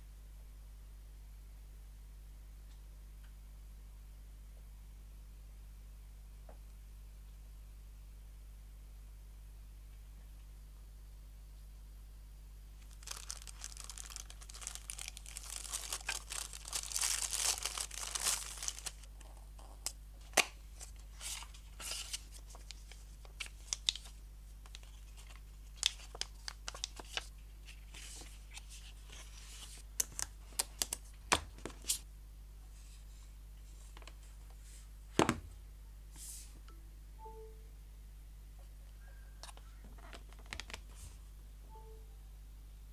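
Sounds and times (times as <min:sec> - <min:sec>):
cardboard packaging clicks and rustles: 0:12.8 - 0:32.0
plastic shrink wrap crinkling: 0:12.8 - 0:32.0.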